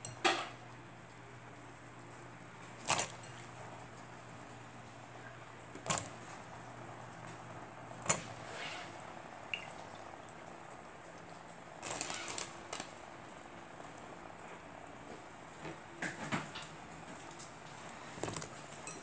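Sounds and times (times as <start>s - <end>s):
metal spoon clinking on pot: 18.7s - 19.0s.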